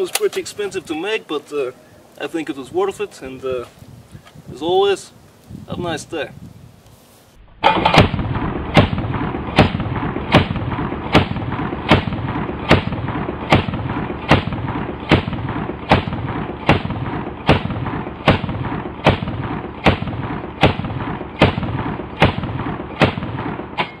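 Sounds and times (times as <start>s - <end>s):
automatic shotgun firing: 7.6s - 23.9s.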